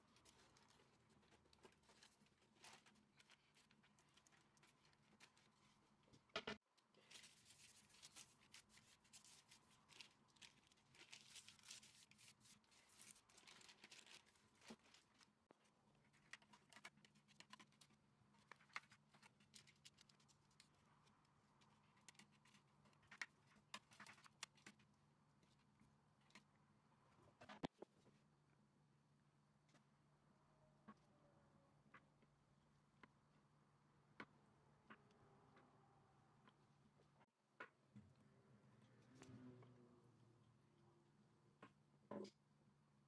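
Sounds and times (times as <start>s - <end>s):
baking paper crinkling: 0.0s - 6.0s, 6.9s - 24.8s.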